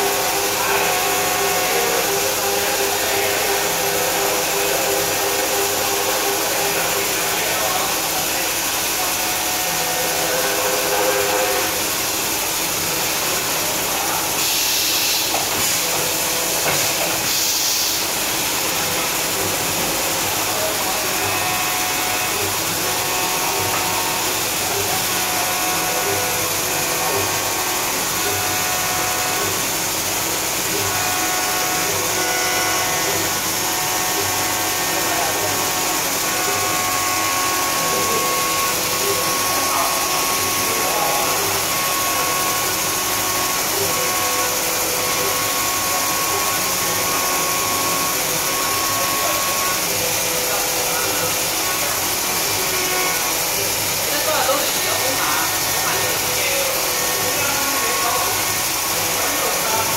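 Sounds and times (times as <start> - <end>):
coolant spray hiss: 0.0 - 59.9
milling machine cutting whine: 0.0 - 59.9.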